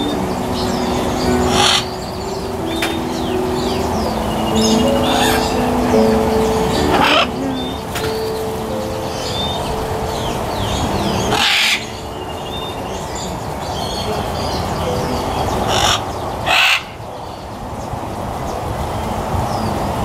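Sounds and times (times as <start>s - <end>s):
small birds chirping: 0.0s - 20.0s
macaw squawking: 11.3s - 12.0s, 15.7s - 17.0s.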